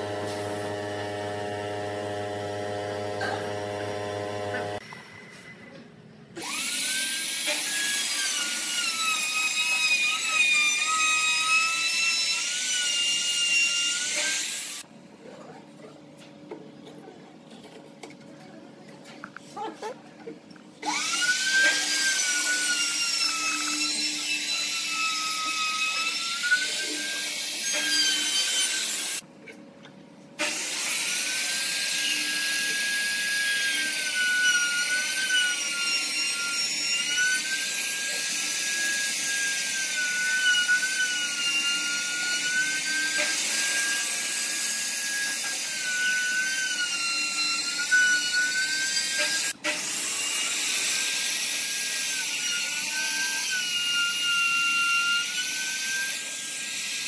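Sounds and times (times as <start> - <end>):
router whining cutting wood: 0.0 - 4.8, 6.4 - 14.8, 20.8 - 29.2.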